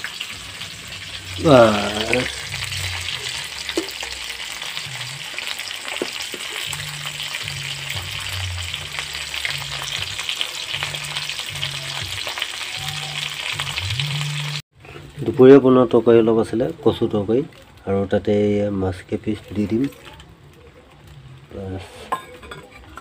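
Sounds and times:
fish sizzling in hot oil: 0.0 - 14.6
wood fire crackling: 0.0 - 21.9.

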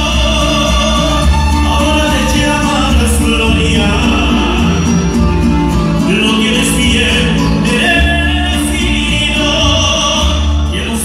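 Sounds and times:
bass line: 0.0 - 11.0
mariachi band playing: 0.0 - 11.0.

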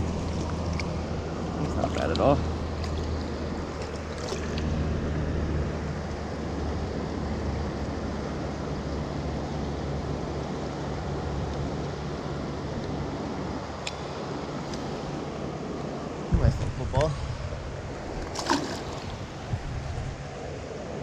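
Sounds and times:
flowing river water: 0.0 - 21.0
wind rumble on microphone: 15.2 - 21.0.

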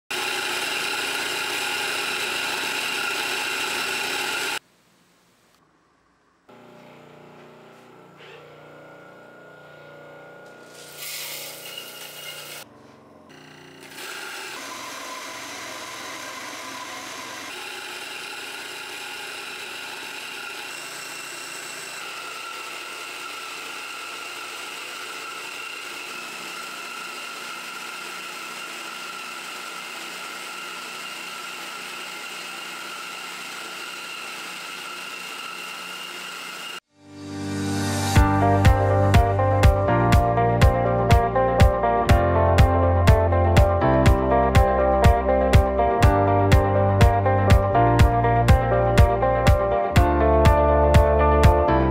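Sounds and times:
coffee grinder motor whining: 0.1 - 4.6, 6.5 - 36.9
coffee beans poured into grinder: 10.6 - 12.6.

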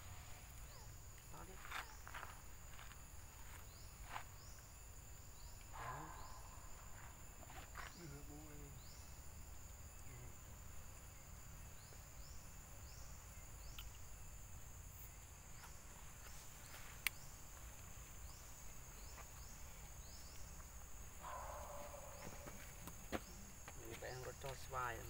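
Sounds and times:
faint insect buzz: 0.0 - 25.0.

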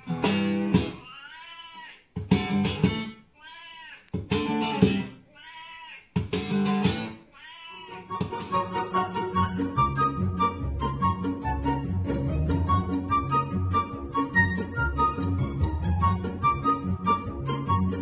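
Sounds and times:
acoustic guitar strumming: 0.0 - 1.0, 2.2 - 3.2, 4.2 - 5.2, 6.2 - 7.2, 8.0 - 9.9
cat meowing: 1.0 - 2.0, 3.4 - 4.1, 5.0 - 6.1, 7.3 - 8.1.

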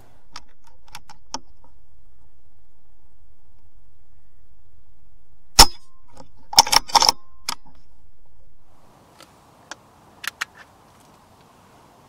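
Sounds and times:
steady background noise: 0.0 - 12.0
air rifle crack: 5.5 - 7.9
sharp mechanical clicks: 6.5 - 7.6
faint hiss: 8.7 - 12.0.

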